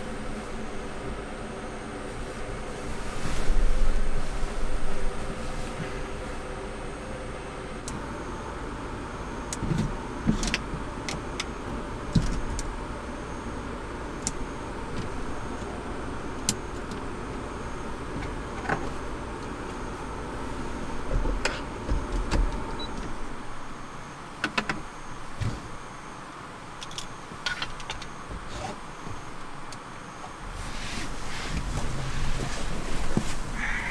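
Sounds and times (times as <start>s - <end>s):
low hum: 0.0s - 26.4s
background hiss: 0.0s - 33.9s.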